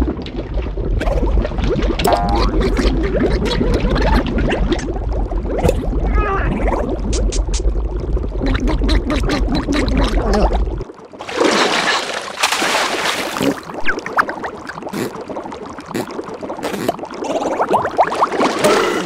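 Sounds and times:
cartoon underwater bubbling: 0.0s - 19.0s
cartoon vocal sounds: 2.0s - 4.6s, 6.0s - 7.6s, 8.4s - 10.8s, 16.0s - 17.8s, 18.6s - 19.0s
loud water splash: 11.2s - 13.9s.

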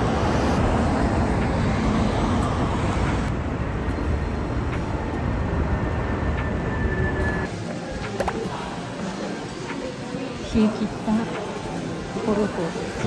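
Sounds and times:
cars driving past: 0.0s - 7.5s.

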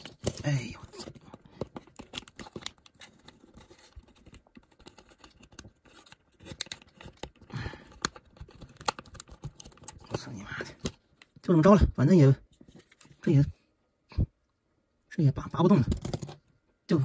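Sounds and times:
hard plastic parts clicking and scraping: 0.0s - 11.4s, 15.8s - 16.5s.

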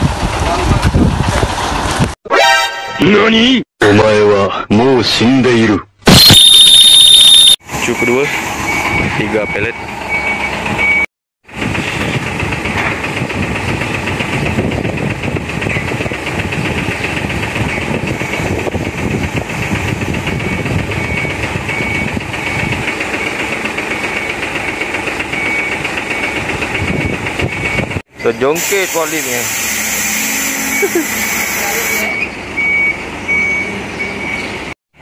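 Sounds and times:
reversing alarm beeps: 6.2s - 11.1s, 20.4s - 23.4s, 24.1s - 28.0s, 30.2s - 34.6s
forklift engine running: 7.8s - 28.0s.

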